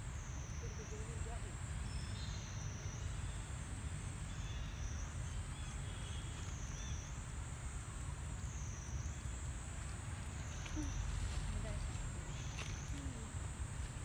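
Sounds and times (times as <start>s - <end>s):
high-pitched insect drone: 0.0s - 14.0s
steady low rumble: 0.0s - 14.0s.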